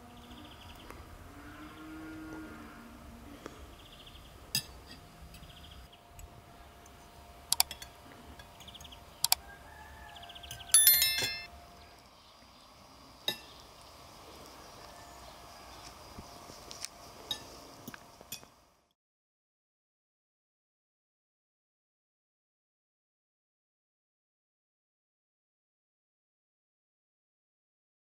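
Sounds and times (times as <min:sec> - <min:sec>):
forks clinking against plates: 0:10.8 - 0:11.5.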